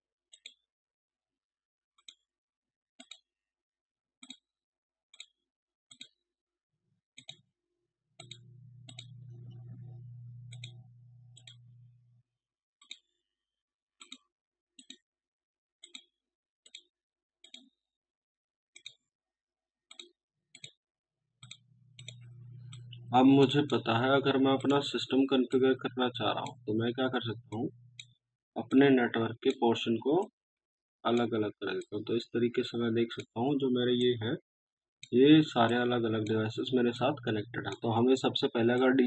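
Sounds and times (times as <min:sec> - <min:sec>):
computer mouse clicking: 0:03.0 - 0:03.2, 0:04.2 - 0:04.4, 0:08.2 - 0:11.9, 0:14.0 - 0:14.2, 0:15.8 - 0:16.1, 0:19.9 - 0:20.8, 0:21.4 - 0:28.8
low hum: 0:08.2 - 0:12.2, 0:21.5 - 0:28.1.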